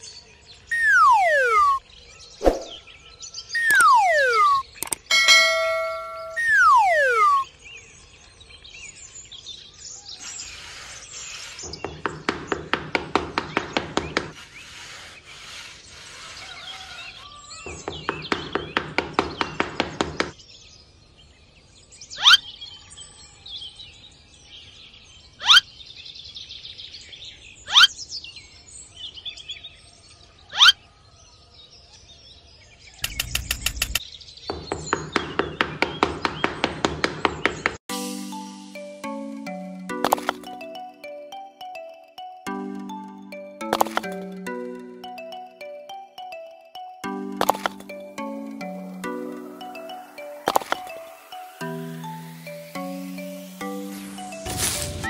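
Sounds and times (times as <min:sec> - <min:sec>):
birds twittering: 0:00.0 - 0:23.4.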